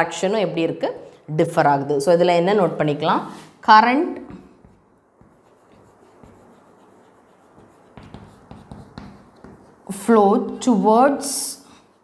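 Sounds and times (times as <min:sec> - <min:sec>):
chalk scratching on chalkboard: 0:04.3 - 0:12.0.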